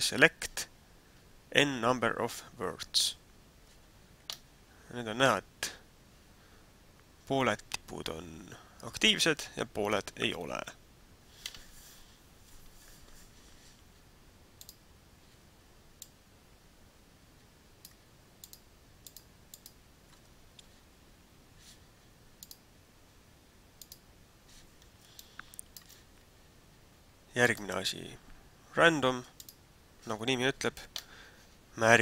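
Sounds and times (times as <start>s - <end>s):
low steady hiss: 0.0s - 32.0s
computer mouse clicks: 14.6s - 14.8s, 17.8s - 20.2s, 22.4s - 22.6s, 23.8s - 24.0s, 24.9s - 26.0s, 29.4s - 29.6s.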